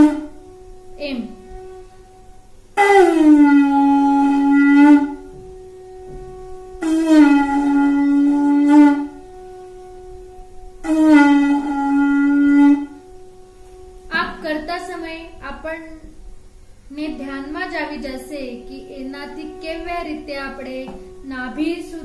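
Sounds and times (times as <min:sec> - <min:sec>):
tube blown like a horn: 0:00.0 - 0:22.0.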